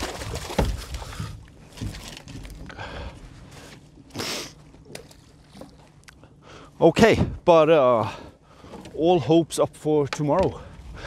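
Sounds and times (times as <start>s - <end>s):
knocks and scrapes on boat deck: 0.2s - 5.8s.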